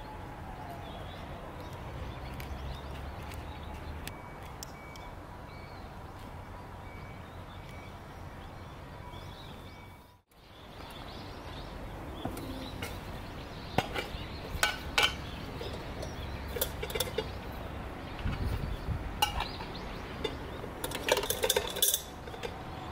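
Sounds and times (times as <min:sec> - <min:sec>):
metallic clinks and taps: 0:19.2 - 0:22.6.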